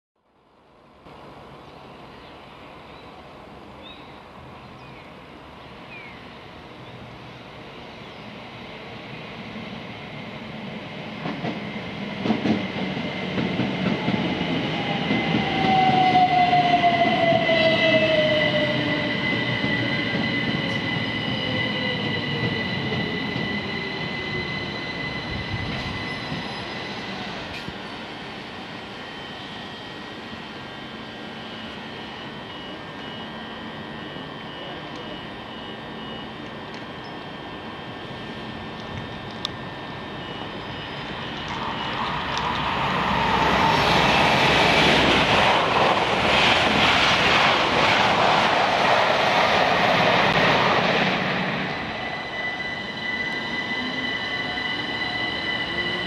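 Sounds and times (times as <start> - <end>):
electric train passing: 0.8 - 56.0
high wheel squeal: 14.8 - 28.0, 49.7 - 56.0.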